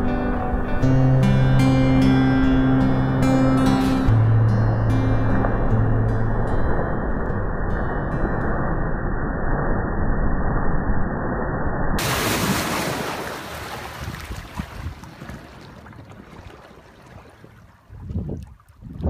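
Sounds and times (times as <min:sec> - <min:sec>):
river water splashing and rushing: 0:12.0 - 0:18.9
wake washing over stones: 0:12.0 - 0:19.0.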